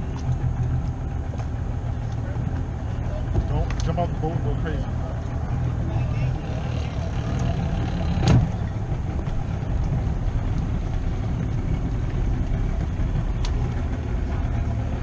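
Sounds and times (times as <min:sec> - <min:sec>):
boat thumping dock: 0:00.0 - 0:04.2, 0:06.7 - 0:15.0
outboard motor idling: 0:00.0 - 0:15.0.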